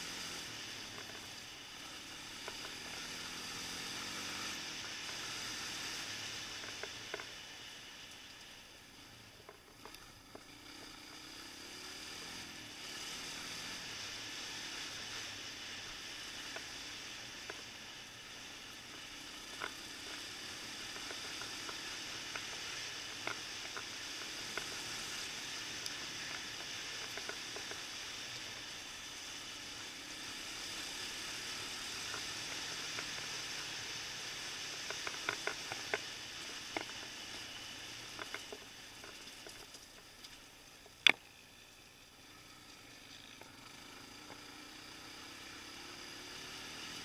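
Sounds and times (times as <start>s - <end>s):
quad engine running: 0.0s - 7.5s, 9.4s - 47.0s
stones knocking and ticking: 34.8s - 37.0s, 38.1s - 41.3s.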